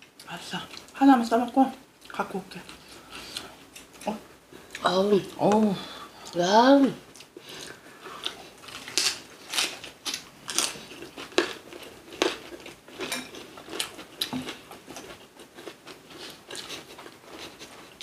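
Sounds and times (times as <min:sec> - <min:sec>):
chewing crisp cabbage leaf: 0:07.1 - 0:18.0.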